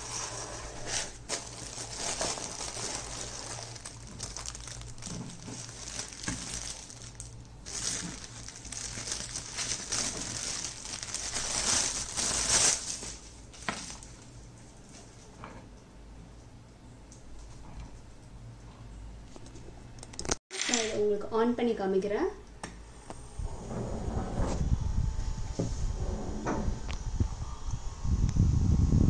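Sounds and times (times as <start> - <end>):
plastic bag crinkling: 0.9 - 14.3.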